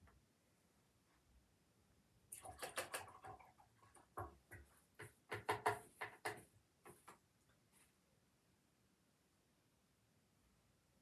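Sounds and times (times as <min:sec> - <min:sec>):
paintbrush clicking on pot: 0:02.3 - 0:07.2.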